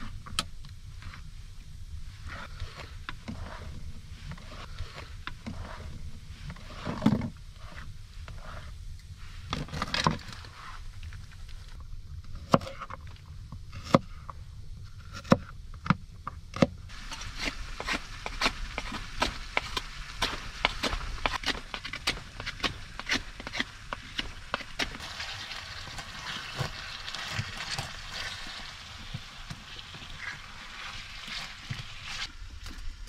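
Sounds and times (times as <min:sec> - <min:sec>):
clicks and scrapes: 0:16.6 - 0:32.3.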